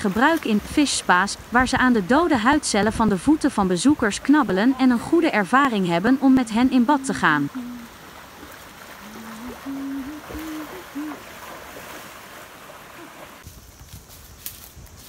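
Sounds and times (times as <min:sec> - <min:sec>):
mountain stream rushing: 0:00.0 - 0:13.4
low hoot-like tones: 0:06.0 - 0:08.0, 0:08.9 - 0:11.4.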